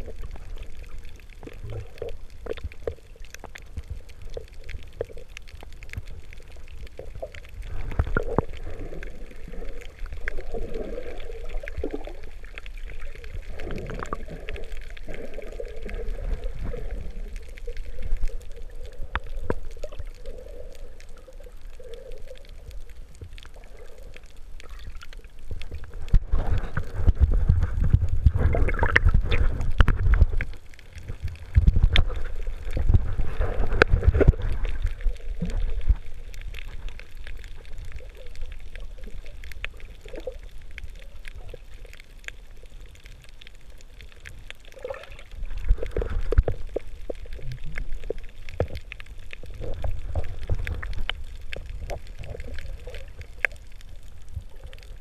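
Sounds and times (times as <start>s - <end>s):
water gurgling and bubbling: 0.0s - 55.0s
low rumble: 25.4s - 39.0s.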